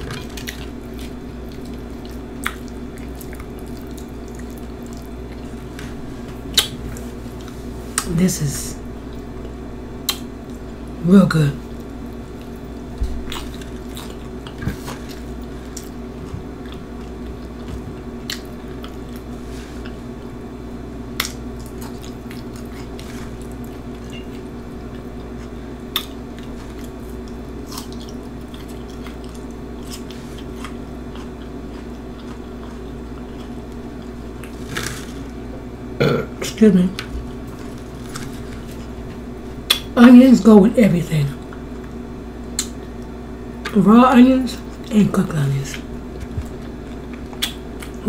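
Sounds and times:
wet chewing mouth sounds: 0:00.0 - 0:08.1, 0:11.7 - 0:20.3, 0:21.1 - 0:35.0, 0:45.7 - 0:48.0.

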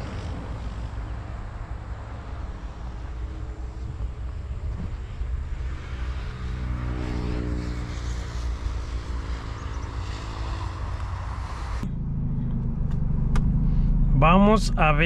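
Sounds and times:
car engine idling: 0:11.0 - 0:15.0.

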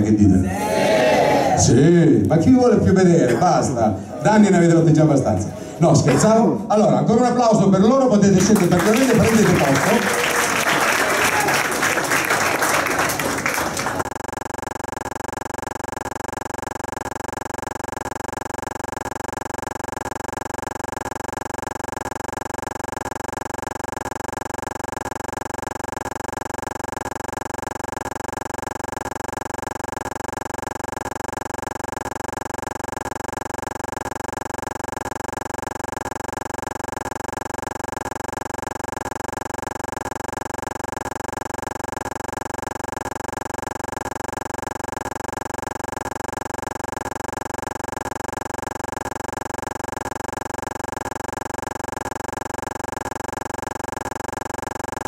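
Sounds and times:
applause: 0:08.4 - 0:14.0.

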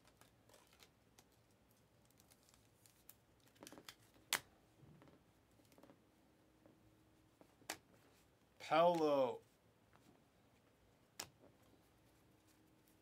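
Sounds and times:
cards flipped and set down: 0:02.2 - 0:04.5, 0:11.2 - 0:11.5.

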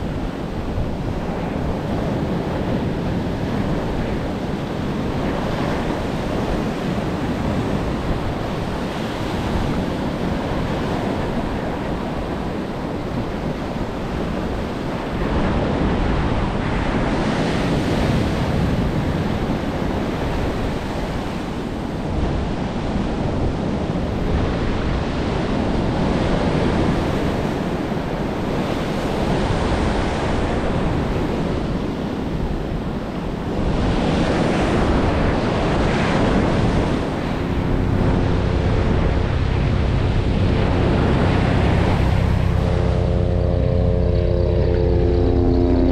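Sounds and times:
wind rumbling on microphone: 0:00.0 - 0:45.9
ocean surf breaking: 0:27.9 - 0:45.9.

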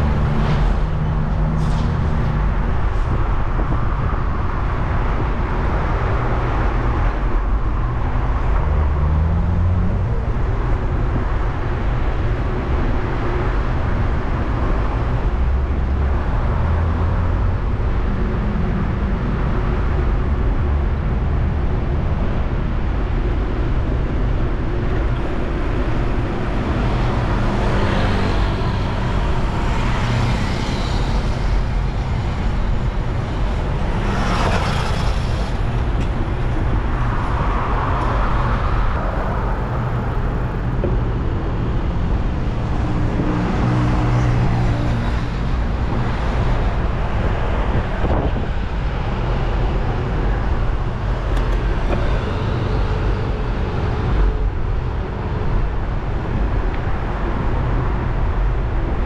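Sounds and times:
traffic engines rumbling and passing: 0:00.0 - 0:59.0
loud passing vehicle: 0:25.3 - 0:55.8.

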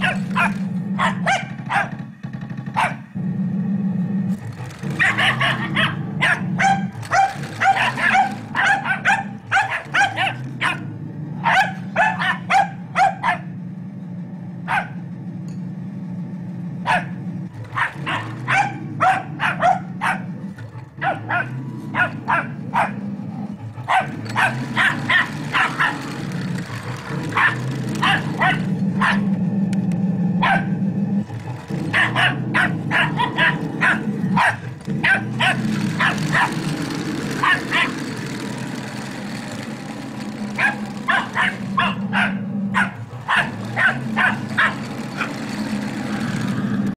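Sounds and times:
small dog barking: 0:00.0 - 0:02.0, 0:02.8 - 0:03.1, 0:04.9 - 0:13.6, 0:14.6 - 0:15.0, 0:16.8 - 0:20.4, 0:21.0 - 0:23.0, 0:23.9 - 0:26.1, 0:27.3 - 0:29.3, 0:30.4 - 0:30.8, 0:31.9 - 0:36.6, 0:37.4 - 0:38.0, 0:40.6 - 0:45.4
model tank motor humming: 0:00.0 - 0:46.9.

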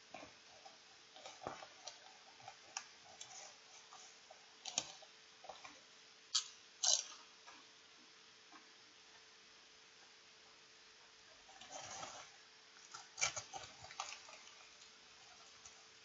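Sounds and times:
potato chips crunching while chewed: 0:06.3 - 0:07.2.

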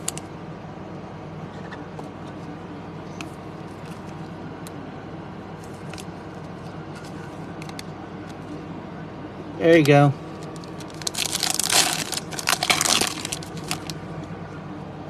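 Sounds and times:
low room hum: 0:00.0 - 0:15.0
cards in plastic sleeves rustling: 0:10.3 - 0:14.0.

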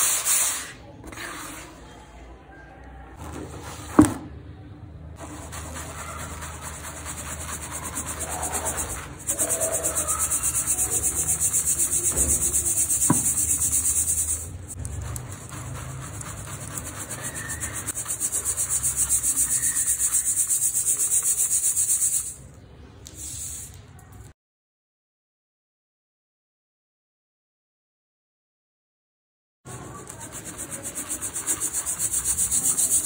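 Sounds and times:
powder sifted through mesh strainer: 0:05.2 - 0:22.4, 0:29.7 - 0:33.0.

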